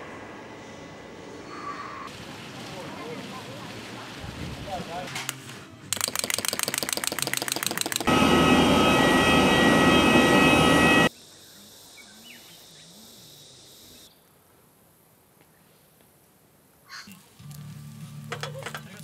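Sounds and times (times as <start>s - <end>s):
wind-up toy clockwork ticking: 5.9s - 8.1s
jet airliner engines whining: 7.5s - 11.1s.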